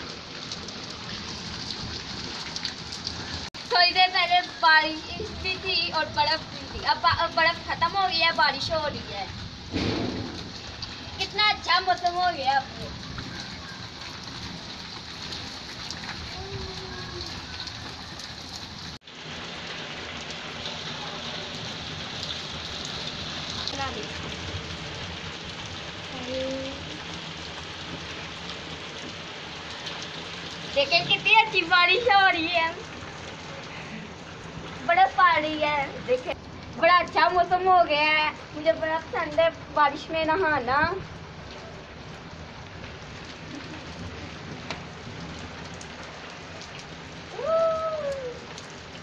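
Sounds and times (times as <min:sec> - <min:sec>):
rain splashing on concrete: 0:00.0 - 0:49.0.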